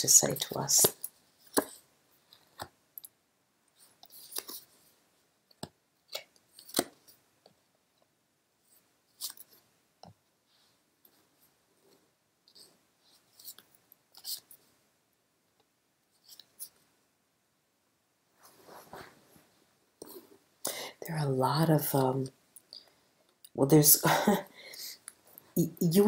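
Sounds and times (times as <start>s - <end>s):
cards flicking and tapping: 5.6s - 7.1s.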